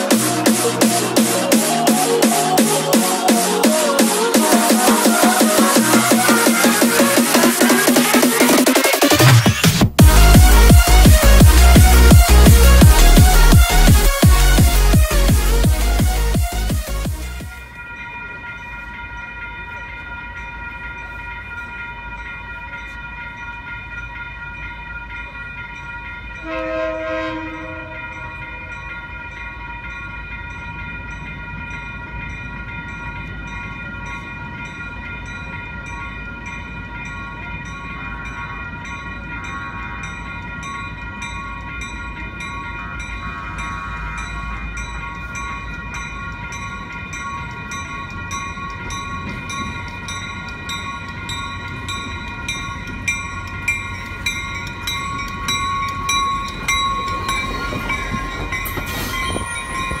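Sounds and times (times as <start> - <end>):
crossing bells ringing: 0.0 - 60.0
train wheels clicking: 0.0 - 60.0
train wheel squeal: 47.7 - 60.0.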